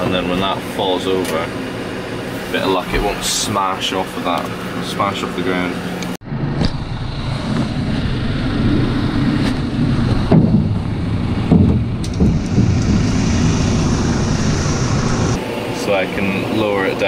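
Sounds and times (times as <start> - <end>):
tractor running: 5.9 - 17.0.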